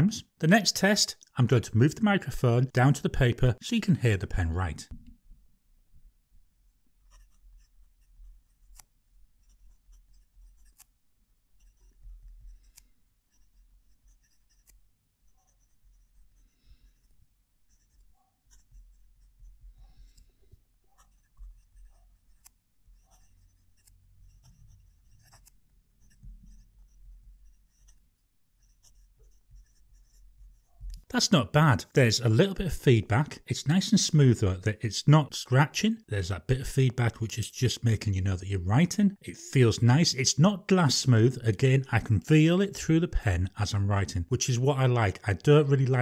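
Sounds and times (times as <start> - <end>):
pen nib scratching on paper: 6.6 - 31.1.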